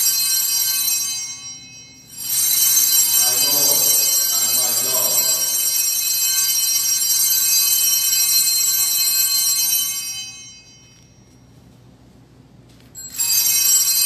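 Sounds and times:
altar bells ringing: 0.0s - 11.8s, 13.0s - 14.0s.

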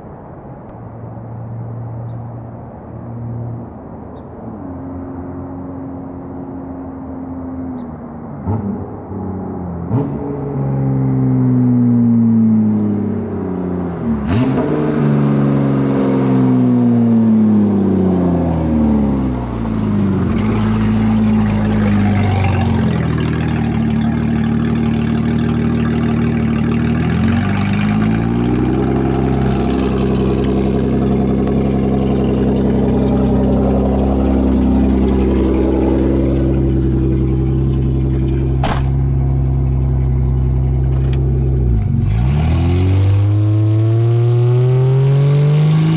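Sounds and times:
loud car engine revving: 8.4s - 45.9s.

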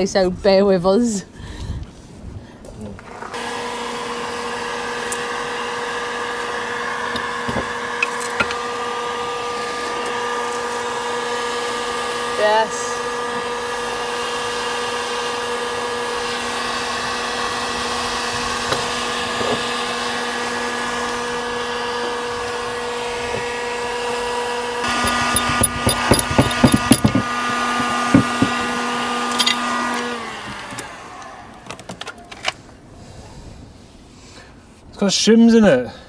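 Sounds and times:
heat gun fan humming: 3.0s - 32.3s
sharp clicks and knocks: 24.9s - 29.6s.

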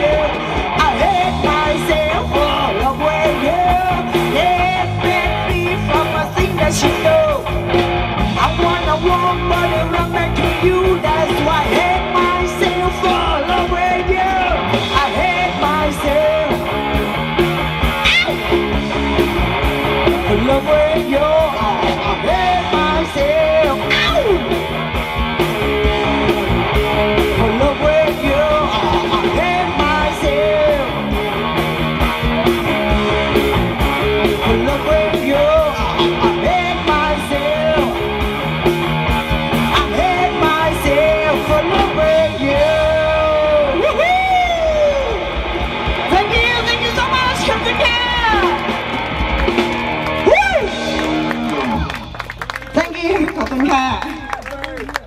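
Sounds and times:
steady drum beat: 0.0s - 43.3s
guitar: 0.0s - 55.0s.

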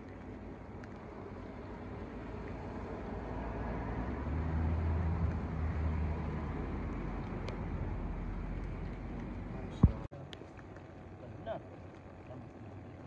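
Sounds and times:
motor vehicle passing by: 0.0s - 10.1s
outdoor noise: 0.0s - 13.0s.

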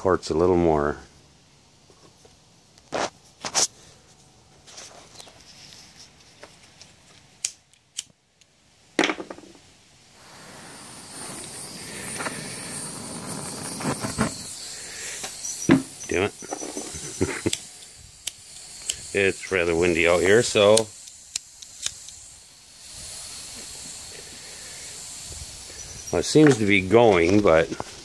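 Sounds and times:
torch igniter clicks: 7.4s - 8.5s, 10.2s - 22.3s
torch gas hiss: 10.0s - 28.0s.

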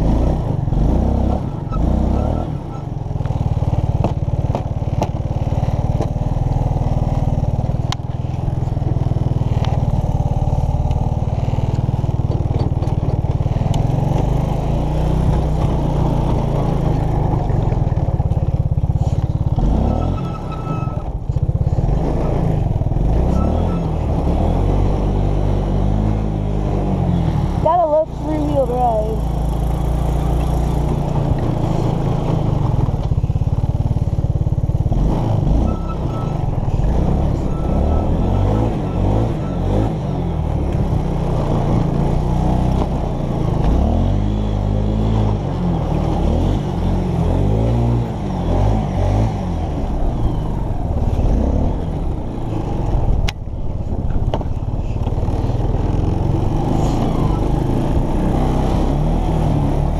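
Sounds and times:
quad bike engine revving: 0.0s - 59.9s.

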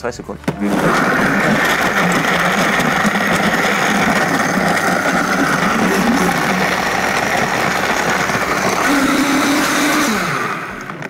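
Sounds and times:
blender blending ice: 0.6s - 11.0s.

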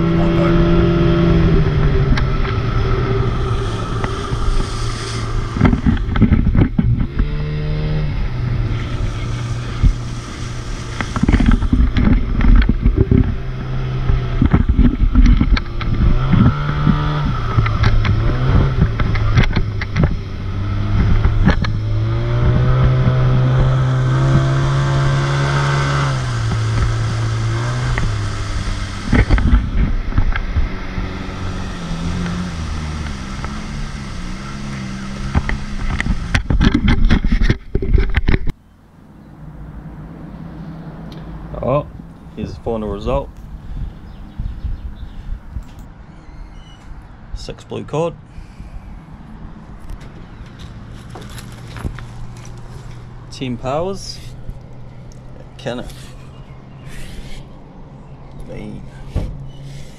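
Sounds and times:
boat motor running: 0.0s - 38.5s.

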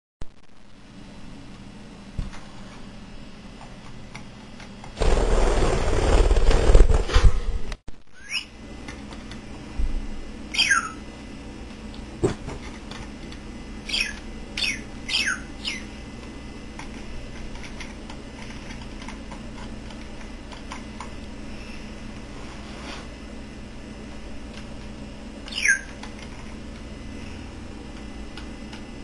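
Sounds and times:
budgerigar chirping: 8.2s - 8.5s, 10.5s - 11.0s, 13.9s - 15.9s, 25.5s - 25.9s.

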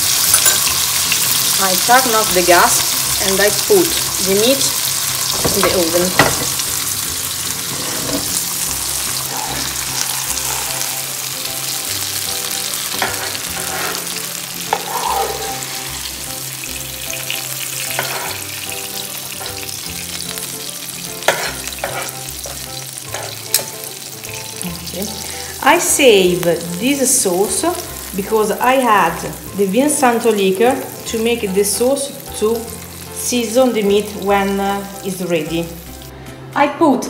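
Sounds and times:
oil sizzling in frying pan: 0.0s - 36.1s
metal fork clinking on pan: 0.3s - 0.7s, 21.3s - 22.1s.

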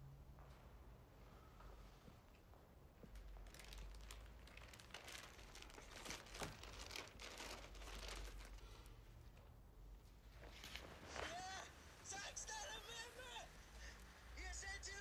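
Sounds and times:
papers rustling: 3.0s - 9.5s, 10.3s - 14.3s.

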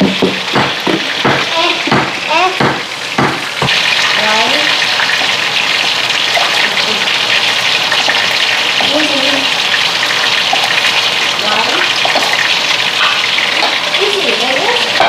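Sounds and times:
pestle striking stone mortar: 0.0s - 3.8s
oil sizzling in a pan: 0.0s - 15.0s.

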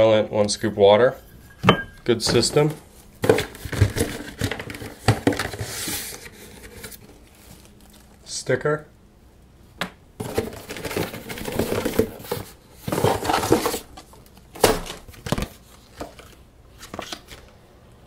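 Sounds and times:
paper packaging rustling: 2.3s - 8.3s, 10.2s - 17.6s.

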